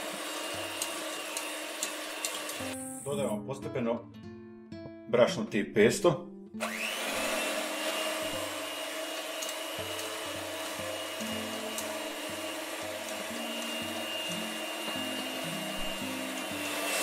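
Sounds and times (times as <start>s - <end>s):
electric hand mixer whining: 0.0s - 3.0s, 6.6s - 17.0s.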